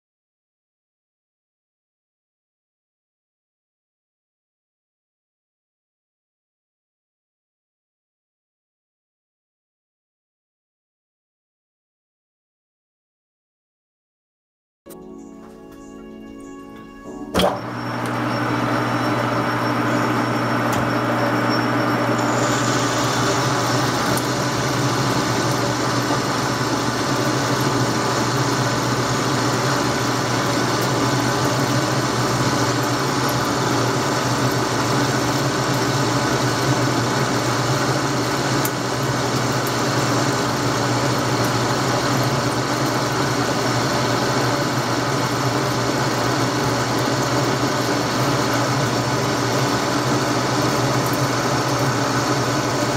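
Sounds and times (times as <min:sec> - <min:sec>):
metal lathe cutting: 0:16.8 - 0:52.9.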